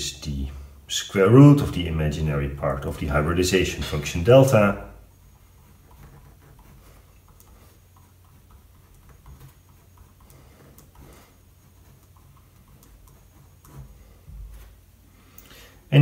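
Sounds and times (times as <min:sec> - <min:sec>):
steady low hum: 0:00.0 - 0:16.0
pen scratching on paper: 0:05.3 - 0:14.8.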